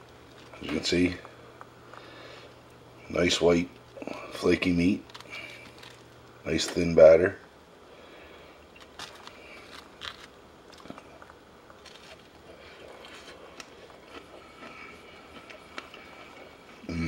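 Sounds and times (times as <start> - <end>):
fried fish crackling: 5.0 - 6.3.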